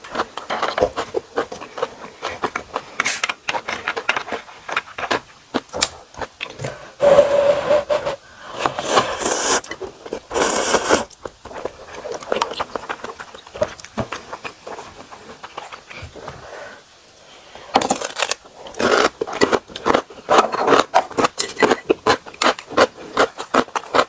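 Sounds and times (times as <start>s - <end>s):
close-miked chewing: 0.0s - 6.7s, 11.2s - 16.3s, 18.7s - 24.0s
slurping noodles: 6.6s - 11.1s.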